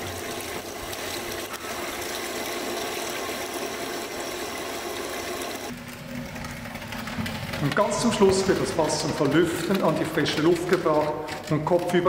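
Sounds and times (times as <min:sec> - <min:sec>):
water draining onto floor: 0:00.0 - 0:05.7
water spraying inside barrel: 0:00.0 - 0:05.8.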